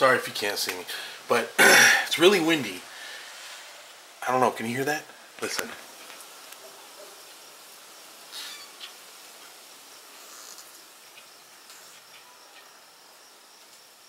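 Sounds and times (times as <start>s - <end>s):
wind through leafy tree: 0.0s - 14.0s
branches squeaking: 8.2s - 12.8s.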